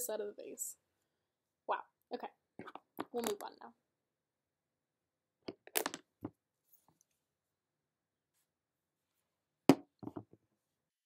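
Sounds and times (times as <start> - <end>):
makeup items clicking and clattering: 2.6 - 3.5.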